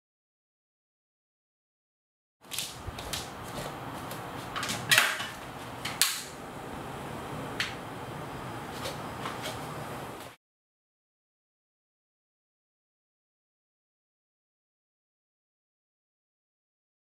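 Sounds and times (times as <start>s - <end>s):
room hum: 2.4s - 10.4s.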